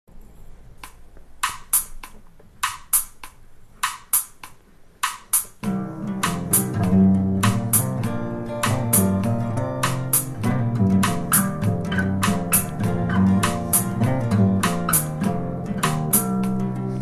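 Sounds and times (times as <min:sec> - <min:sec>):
high percussion hits: 0:00.8 - 0:16.6
guitar playing: 0:05.6 - 0:17.0.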